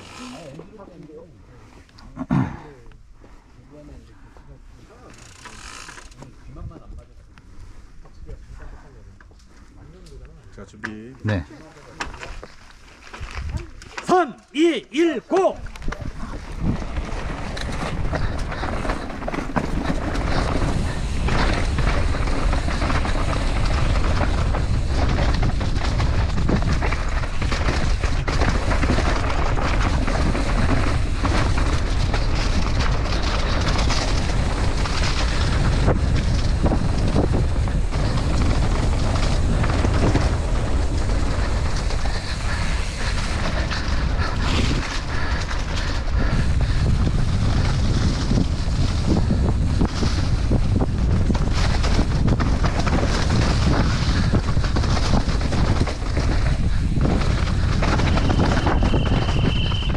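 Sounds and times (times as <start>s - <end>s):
bike knocking and rattling: 0.0s - 1.2s, 4.9s - 7.3s, 7.9s - 14.2s, 15.3s - 59.9s
wind buffeting microphone: 15.6s - 59.9s
tyres rumbling on dirt: 15.7s - 59.9s.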